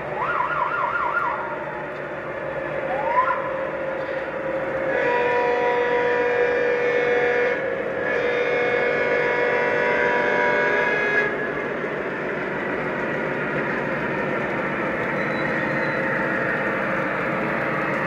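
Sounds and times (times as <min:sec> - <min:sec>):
diesel engine sound: 0:00.0 - 0:18.0
air horn blasts: 0:04.9 - 0:11.4.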